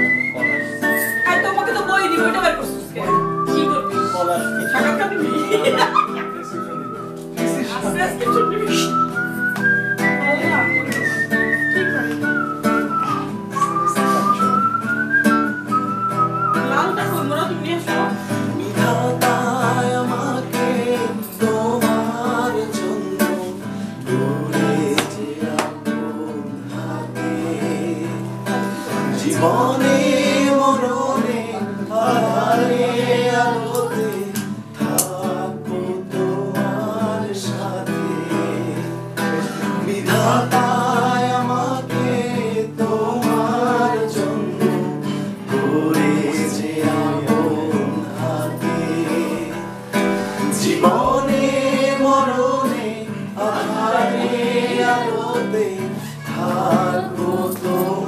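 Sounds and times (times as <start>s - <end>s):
whistled melody: 0.0s - 18.2s
acoustic guitar strumming: 0.0s - 58.0s
voices singing: 0.0s - 58.0s.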